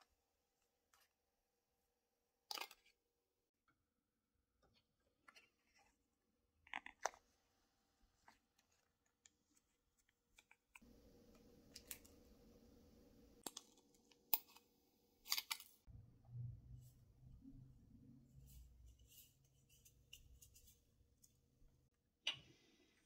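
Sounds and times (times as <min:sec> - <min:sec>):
faint steady hum: 0:10.8 - 0:21.3.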